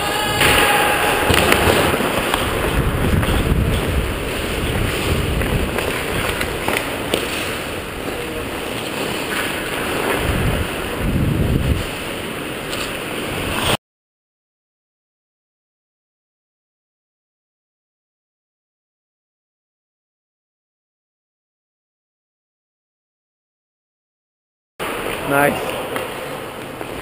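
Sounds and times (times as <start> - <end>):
skates scraping on ice: 0.0 - 13.8, 24.8 - 27.0
wind on microphone: 0.0 - 13.8
hockey stick or puck clicks: 5.4 - 7.5.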